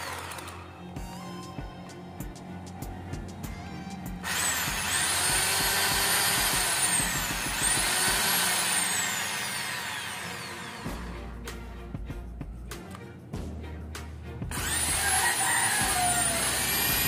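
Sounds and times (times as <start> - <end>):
electric drill motor whining: 0.0 - 11.2, 14.5 - 17.0.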